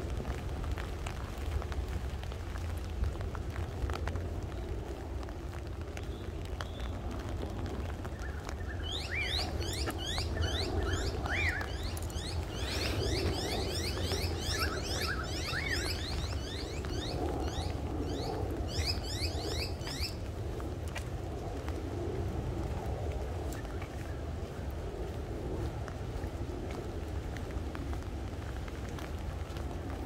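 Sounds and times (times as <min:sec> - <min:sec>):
steady low rumble: 0:00.0 - 0:30.0
birds chirping: 0:08.1 - 0:20.2.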